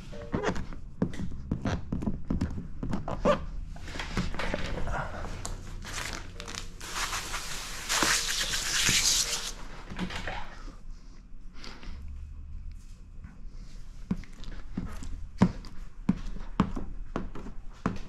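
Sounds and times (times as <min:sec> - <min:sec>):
plastic film crinkling and scraping: 0:05.8 - 0:09.6.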